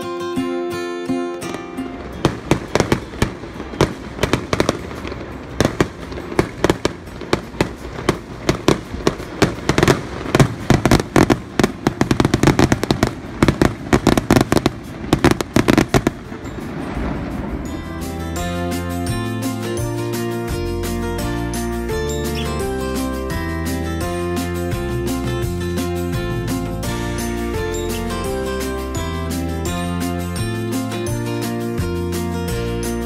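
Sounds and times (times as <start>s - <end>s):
fireworks bangs and crackles: 1.3s - 21.6s.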